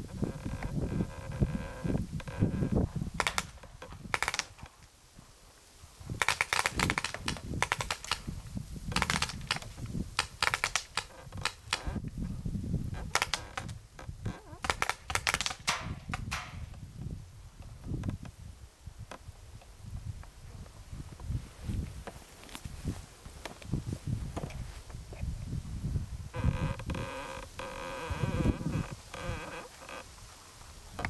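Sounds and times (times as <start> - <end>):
paintball markers firing: 3.2 - 3.6, 6.2 - 8.3, 9.0 - 11.8, 13.1 - 13.7, 14.6 - 16.7.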